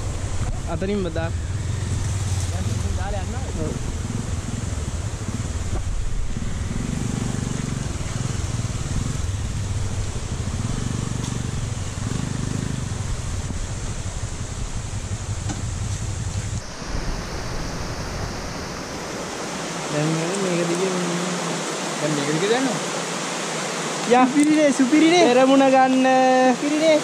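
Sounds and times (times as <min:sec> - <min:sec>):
motorcycle engine rumbling: 0:00.0 - 0:19.9
wind rushing over microphone: 0:00.0 - 0:20.3
steady rushing hiss: 0:00.0 - 0:27.0.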